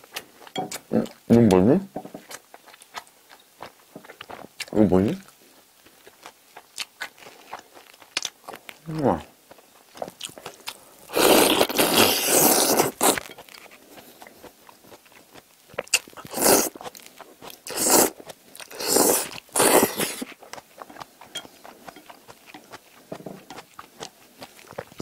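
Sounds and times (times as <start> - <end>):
slurping noodles: 11.1 - 13.3, 16.2 - 16.8, 17.6 - 20.3.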